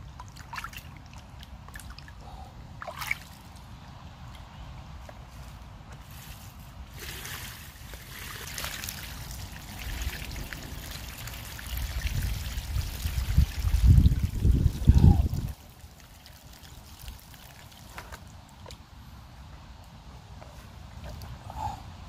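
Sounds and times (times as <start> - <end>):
water pouring and splashing on ground: 0.0 - 2.2, 6.0 - 18.8
low buffeting: 13.2 - 15.6, 20.4 - 22.0.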